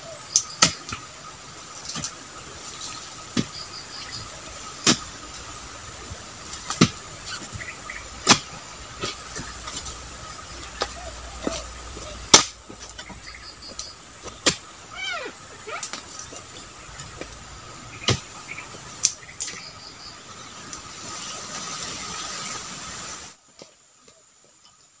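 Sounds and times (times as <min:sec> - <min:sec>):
insect buzz: 0:00.0 - 0:24.9
blade chopping wood: 0:00.4 - 0:01.0, 0:04.8 - 0:05.1, 0:06.6 - 0:07.0, 0:08.2 - 0:09.9, 0:10.7 - 0:14.7.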